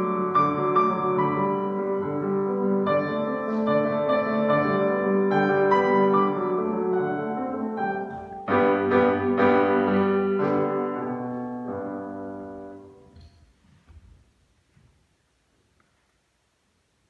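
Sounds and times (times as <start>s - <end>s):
grand piano playing: 0.0s - 13.2s.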